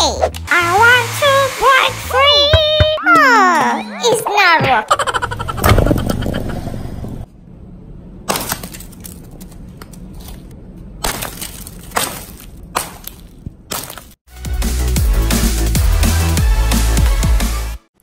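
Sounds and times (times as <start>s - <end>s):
hammer cracking frozen ball: 11.0s - 14.2s.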